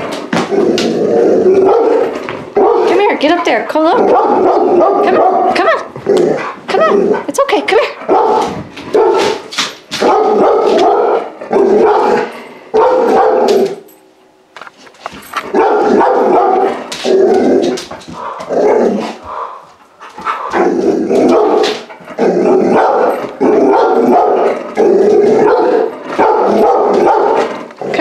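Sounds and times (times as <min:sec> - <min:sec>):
puppy barking: 0:01.6 - 0:03.0, 0:04.0 - 0:05.8, 0:08.0 - 0:13.8, 0:15.5 - 0:16.8, 0:21.3 - 0:21.9, 0:22.7 - 0:24.5, 0:25.4 - 0:27.5.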